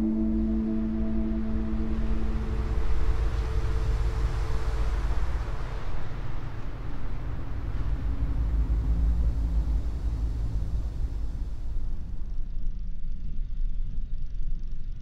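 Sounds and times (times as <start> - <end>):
ringing gong-like tone: 0.0 - 5.6
rushing wash of noise: 0.0 - 12.3
deep ambient drone: 0.0 - 15.0.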